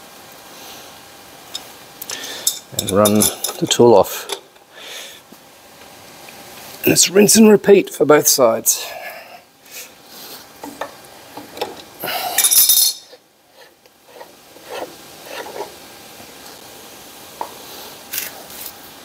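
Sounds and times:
metallic clinks and scrapes of tool: 2.4 - 4.4, 12.4 - 15.7.

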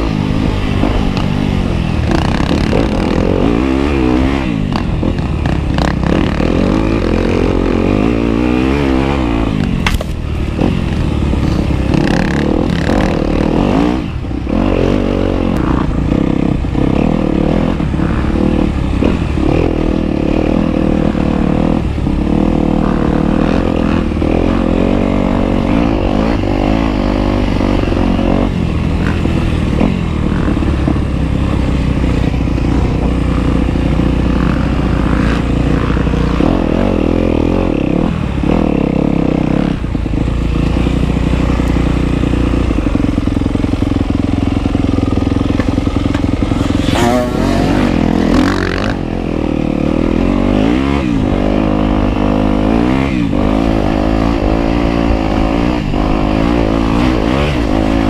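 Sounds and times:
off-road engine revving: 0.0 - 58.0.

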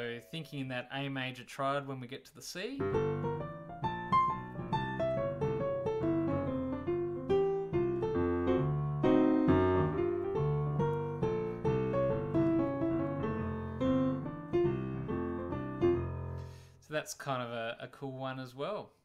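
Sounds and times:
jazz piano playing: 2.8 - 16.7.

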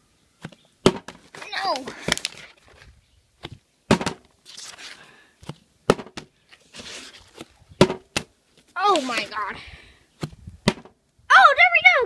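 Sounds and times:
soft rustling: 6.4 - 7.7.

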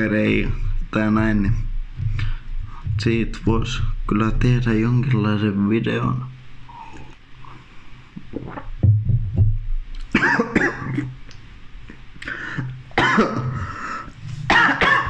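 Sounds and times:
man coughing: 10.2 - 11.2, 12.6 - 15.0.

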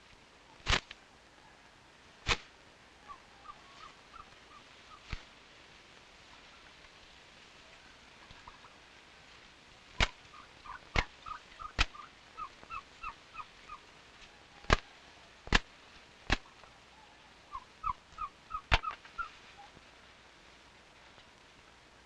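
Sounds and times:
fiber flicked with sharp cracks: 0.0 - 1.0, 2.2 - 2.6, 5.0 - 5.4, 9.9 - 12.8, 14.7 - 16.7, 18.1 - 19.3
bird chirping: 16.4 - 19.7.

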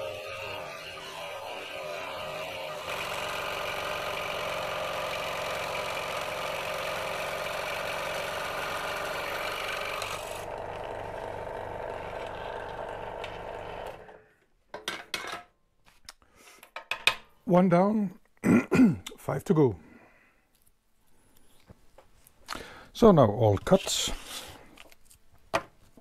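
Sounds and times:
scroll saw running: 0.0 - 14.2.

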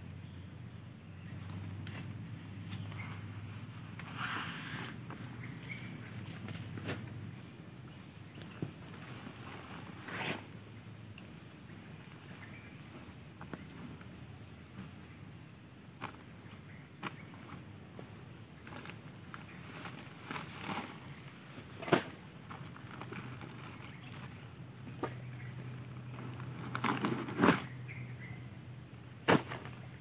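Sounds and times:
forest insects chorus: 0.0 - 30.0
rustles of dry leaves: 18.6 - 28.0.

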